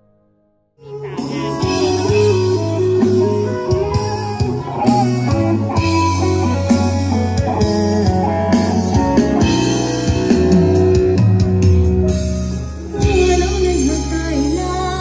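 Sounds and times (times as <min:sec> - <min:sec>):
person singing: 0:00.8 - 0:07.4
live band playing pop-rock: 0:00.8 - 0:15.0.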